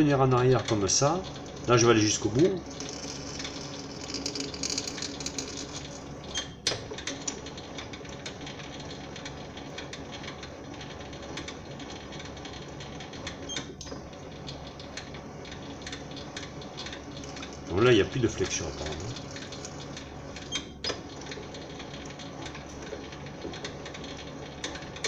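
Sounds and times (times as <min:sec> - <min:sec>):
lathe motor and gear hum: 0:00.0 - 0:25.0
small irregular clicks: 0:02.8 - 0:17.7.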